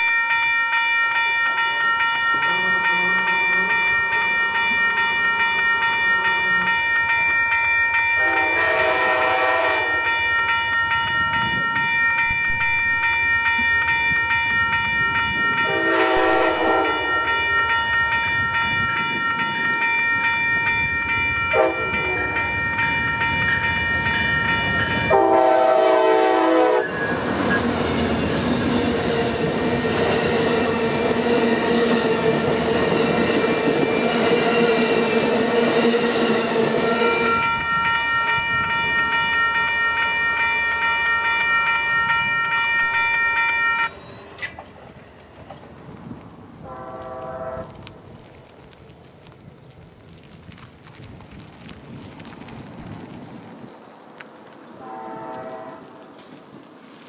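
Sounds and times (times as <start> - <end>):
railroad crossing bell: 0.0 - 45.7, 46.6 - 47.8
train rumbling past: 1.4 - 57.0
train wheel clatter: 1.4 - 57.0
locomotive horn blasts: 2.4 - 4.4, 8.2 - 10.1, 15.6 - 17.3, 21.5 - 22.5, 25.0 - 27.1, 46.7 - 47.8, 54.8 - 56.0.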